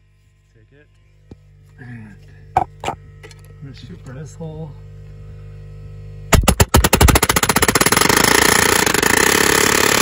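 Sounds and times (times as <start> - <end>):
low steady hum: 0.0 - 8.2
pneumatic palm nailer hammering: 6.3 - 10.0.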